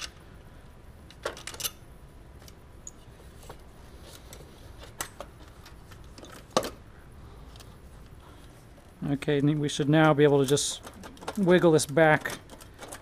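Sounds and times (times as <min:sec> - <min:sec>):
tools clicking and clinking: 0:01.1 - 0:01.8, 0:09.4 - 0:13.0.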